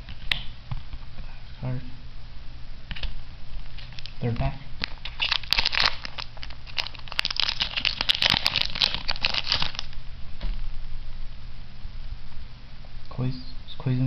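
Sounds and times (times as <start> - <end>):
foil wrapper crinkling: 3.6 - 4.2, 4.8 - 10.0.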